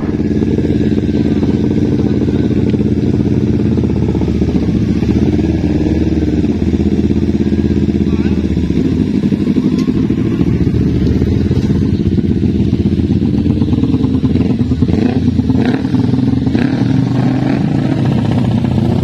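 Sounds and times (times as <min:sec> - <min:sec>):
motorcycle engines idling: 0:00.0 - 0:19.0.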